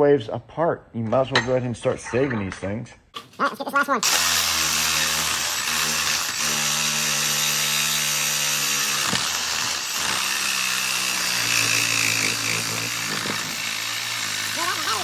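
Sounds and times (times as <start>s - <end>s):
reciprocating saw cutting metal: 4.0s - 15.0s.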